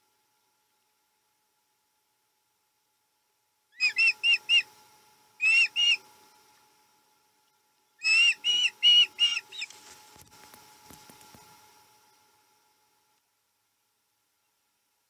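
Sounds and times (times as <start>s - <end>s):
osprey whistled chirps: 3.8s - 4.7s, 5.4s - 6.0s, 8.0s - 9.7s.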